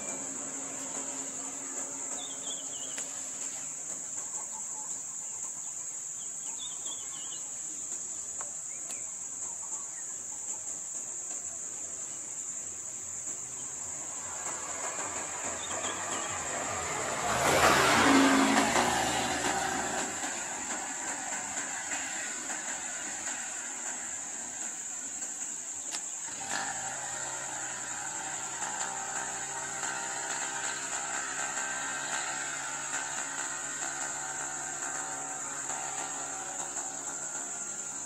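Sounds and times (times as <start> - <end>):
car passing by: 0.0 - 4.2, 13.6 - 38.0
high-pitched insect drone: 10.8 - 38.0.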